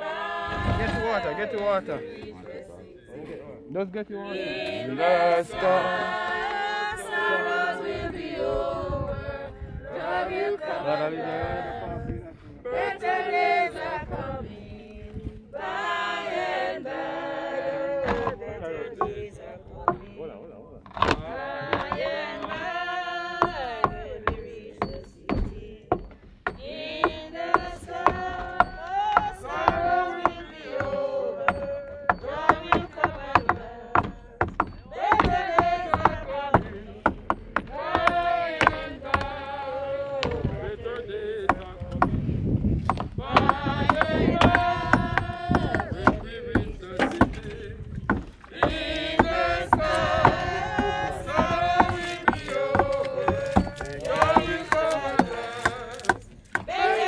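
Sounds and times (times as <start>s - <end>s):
group singing a slow hymn: 0.0s - 57.0s
sharp knocks: 23.4s - 39.4s, 42.8s - 57.0s.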